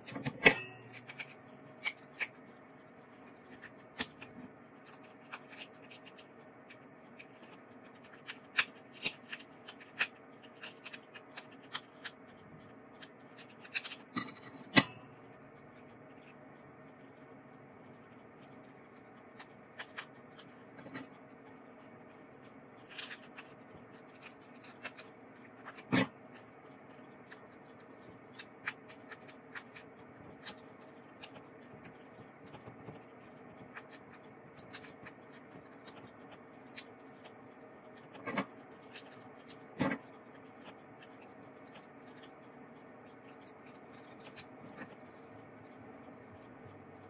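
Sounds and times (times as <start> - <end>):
lobster shell clicking and cracking: 3.4 - 12.3, 13.0 - 15.1, 22.8 - 26.2.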